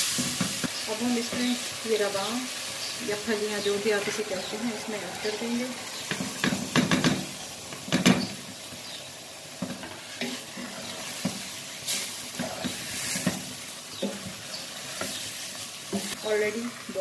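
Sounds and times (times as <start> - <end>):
oil sizzling: 0.0 - 17.0
spatula scraping a pot: 3.6 - 6.8, 9.8 - 13.4.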